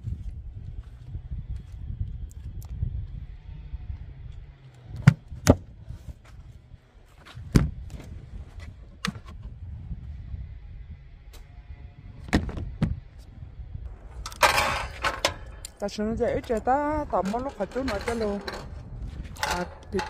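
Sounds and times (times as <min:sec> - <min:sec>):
camping gear knocking and clunking: 0:13.9 - 0:20.0.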